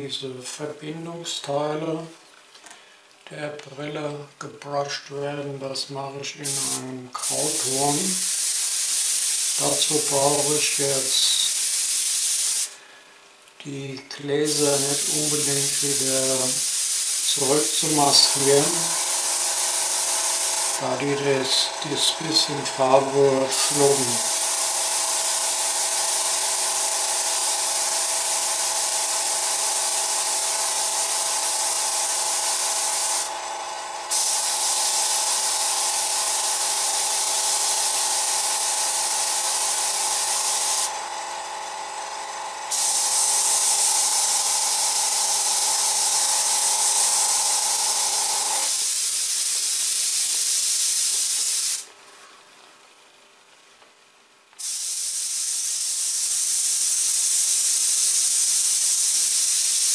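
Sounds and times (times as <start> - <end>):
compressor humming: 6.2 - 48.8
airbrush hissing: 6.4 - 12.8, 14.4 - 33.3, 34.1 - 40.9, 42.7 - 51.9, 54.6 - 59.9.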